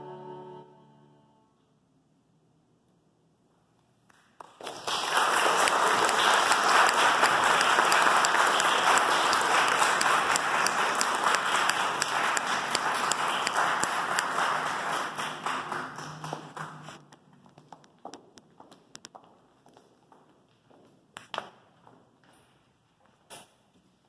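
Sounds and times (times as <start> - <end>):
audience applauding: 4.3 - 17.0.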